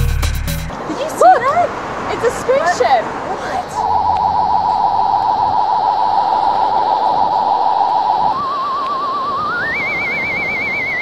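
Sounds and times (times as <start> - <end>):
warbling electronic flying saucer tone: 3.6 - 11.0.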